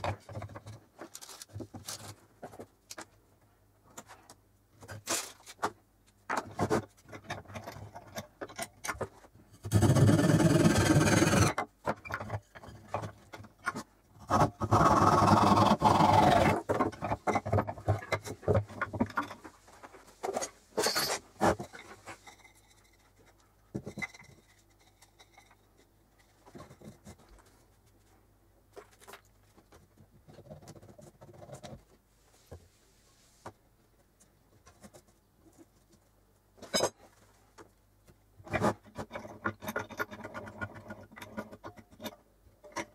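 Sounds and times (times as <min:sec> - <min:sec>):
wood and tools clicking: 0:03.9 - 0:27.6, 0:34.2 - 0:42.9
hand saw cutting wood: 0:09.6 - 0:11.6, 0:14.2 - 0:16.8.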